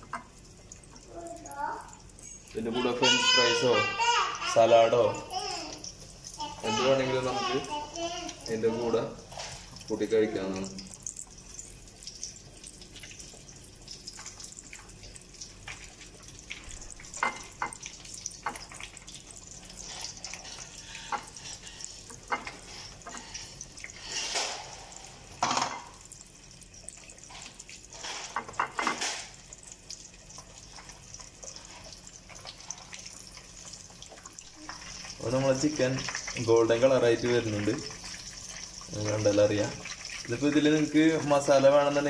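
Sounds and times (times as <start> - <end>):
chicken deep-frying in oil: 0.0 - 42.0
dishes clattering: 17.1 - 18.7, 20.3 - 23.3, 25.4 - 26.0, 28.0 - 29.4
dishes tapping and knocking: 17.1 - 18.7, 22.1 - 23.2, 25.4 - 26.0, 28.2 - 29.2.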